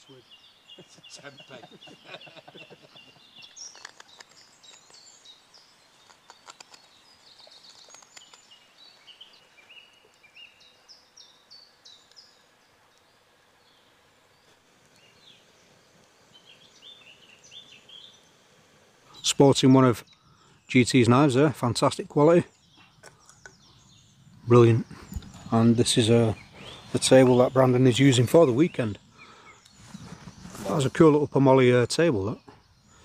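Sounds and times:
small birds chirping and trilling: 0.0s - 33.0s
sharp clicks: 6.0s - 8.6s.

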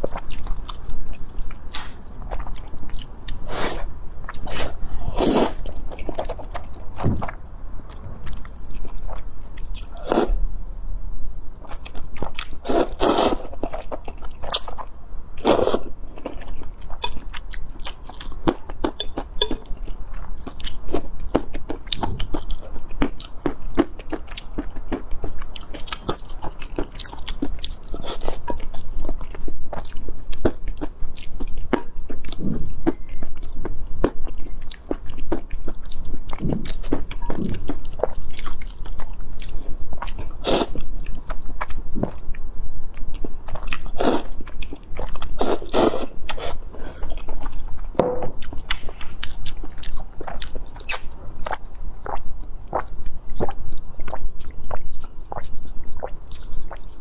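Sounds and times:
slurping noodles: 12.6s - 13.5s, 45.4s - 46.6s
chewing with wet mouth clicks: 16.2s - 45.4s, 46.3s - 57.0s.

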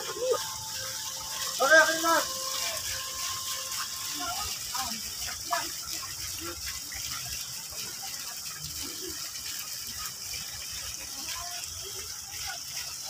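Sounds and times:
fountain splashing into pond: 0.0s - 13.0s.

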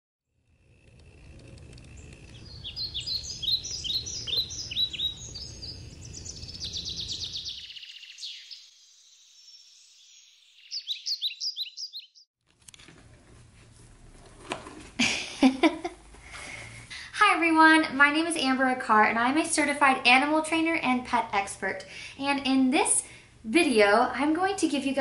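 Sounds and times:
low outdoor rumble: 0.3s - 7.5s
songbirds singing: 1.0s - 12.3s.

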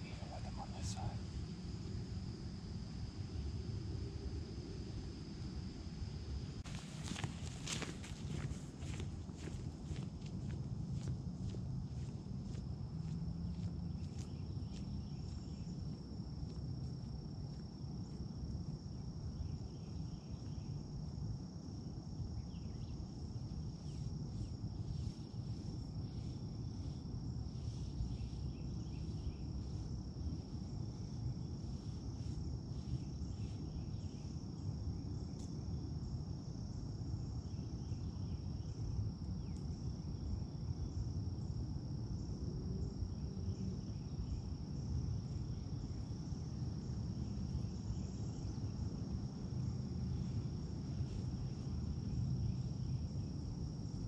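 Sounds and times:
insect trilling: 0.0s - 5.8s.

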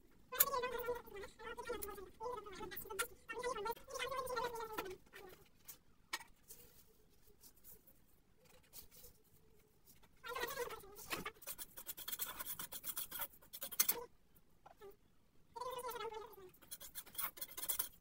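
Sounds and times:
metal spatula scraping steel pan: 16.6s - 18.0s.

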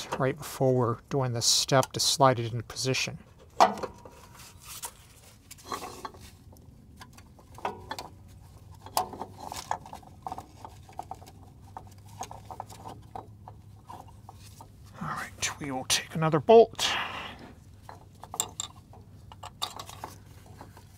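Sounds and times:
metal parts clinking and tapping: 17.8s - 20.9s.

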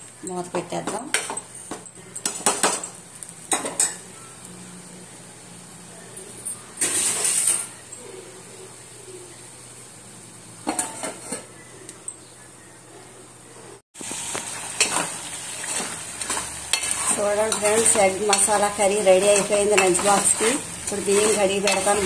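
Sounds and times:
spoon scraping in pot: 14.8s - 22.0s.

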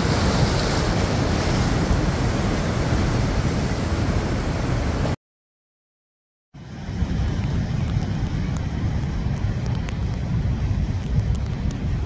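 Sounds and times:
ocean surf washing in: 0.0s - 5.2s
wind buffeting microphone: 6.6s - 12.0s.

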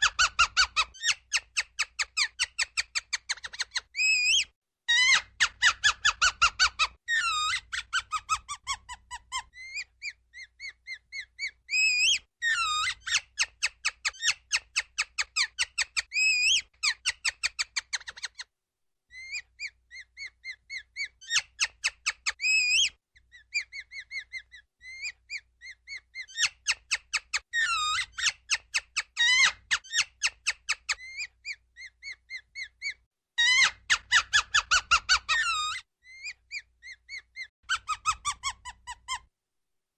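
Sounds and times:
ground squirrel chirping: 0.0s - 13.5s.

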